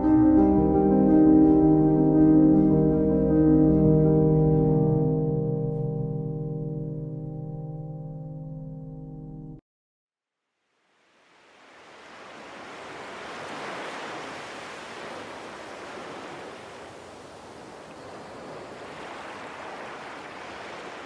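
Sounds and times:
ocean surf washing: 0:10.9 - 0:21.0.

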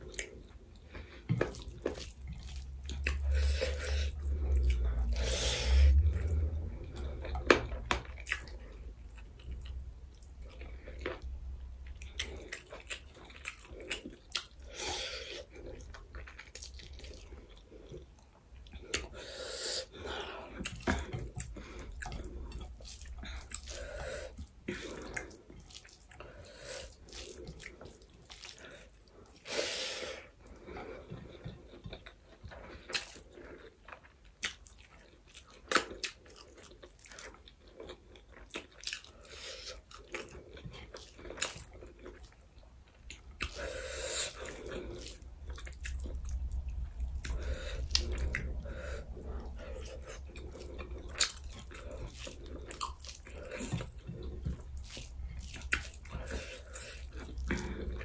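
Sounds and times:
person chewing with wet smacks: 0:00.0 - 0:29.6, 0:30.2 - 0:58.0
food crunching: 0:30.8 - 0:58.0.

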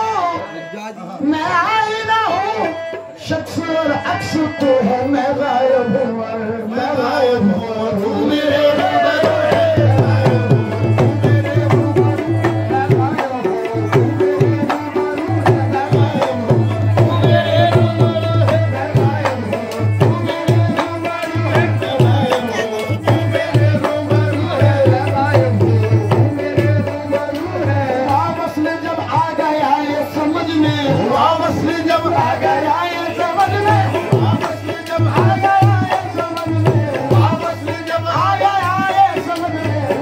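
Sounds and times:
harmonium: 0:00.0 - 0:40.0
men singing: 0:00.0 - 0:40.0
hand drum beat: 0:08.1 - 0:29.6, 0:30.4 - 0:40.0.

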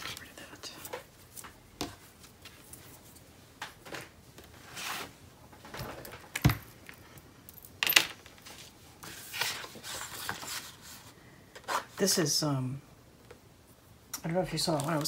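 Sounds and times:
paper rustling and sliding: 0:03.9 - 0:05.2, 0:08.4 - 0:12.0.

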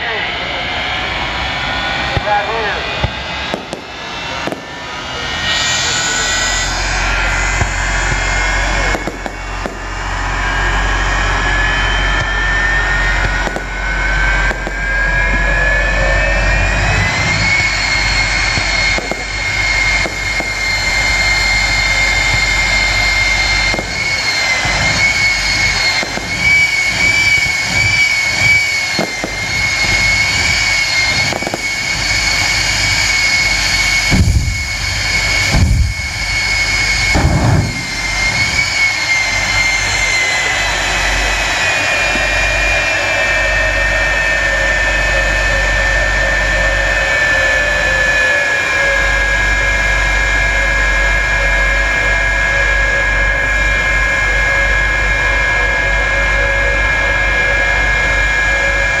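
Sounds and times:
jet engine whine: 0:00.0 - 0:59.0
low booming bursts: 0:01.2 - 0:42.8.

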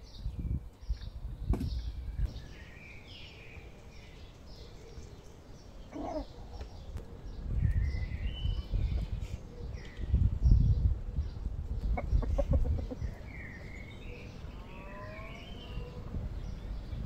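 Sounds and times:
small birds chirping: 0:00.0 - 0:17.0
wind gusts: 0:00.0 - 0:17.0
hen cluck: 0:05.9 - 0:06.4, 0:11.9 - 0:13.2.

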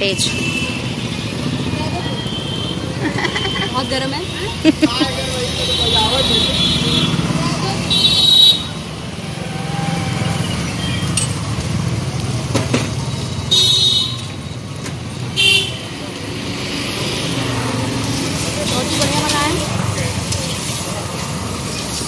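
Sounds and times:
street traffic rumble: 0:00.0 - 0:22.0
vehicle horns tooting: 0:05.3 - 0:08.8, 0:13.5 - 0:14.3, 0:15.4 - 0:15.9.

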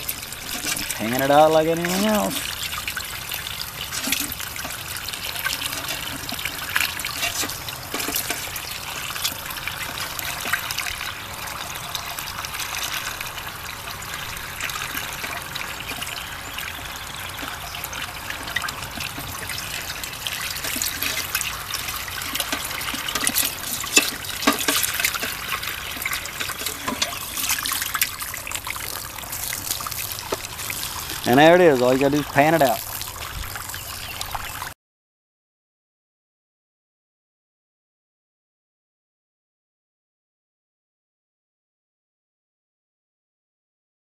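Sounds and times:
water trickling into pan: 0:00.0 - 0:34.8.

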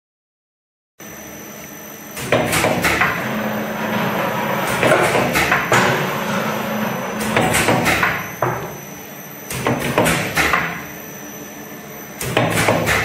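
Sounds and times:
machine motor hum: 0:01.0 - 0:13.0
sharp machine knocks: 0:02.2 - 0:03.2, 0:04.6 - 0:08.7, 0:12.2 - 0:13.0.

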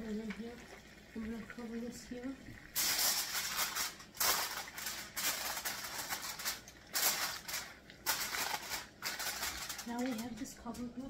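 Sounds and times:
aluminum foil crinkling: 0:02.8 - 0:11.0.

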